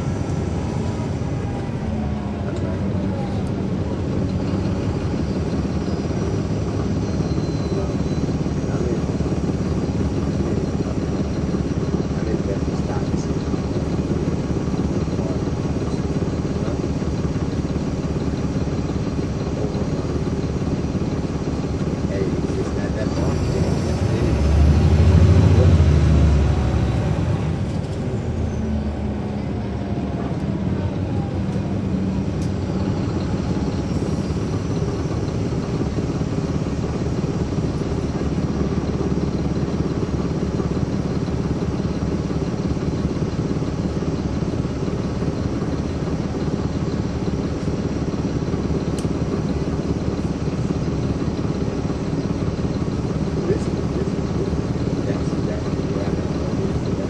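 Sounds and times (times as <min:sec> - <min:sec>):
bus diesel engine running: 0:00.0 - 0:57.0.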